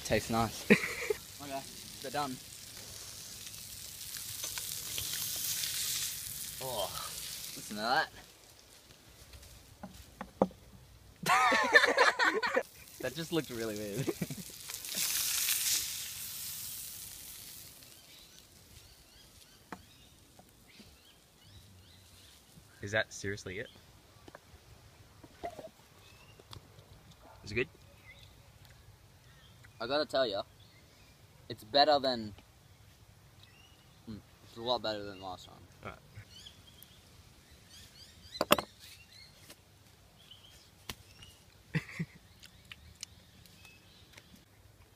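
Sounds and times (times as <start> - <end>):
fish sizzling in butter: 0.0 - 8.8, 11.9 - 20.3
small birds chirping: 16.9 - 31.8, 32.4 - 44.9.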